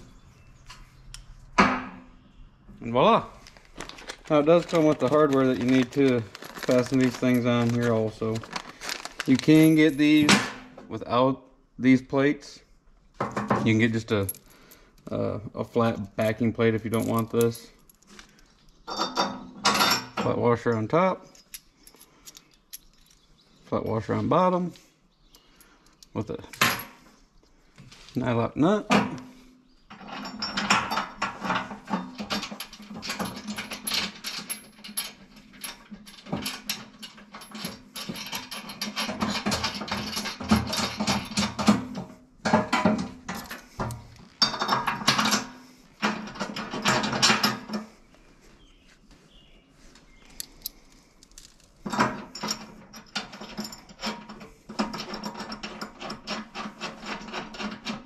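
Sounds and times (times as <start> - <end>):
bolts rattling against steel bucket: 4.3 - 10.8, 28.7 - 48.0, 51.4 - 58.0.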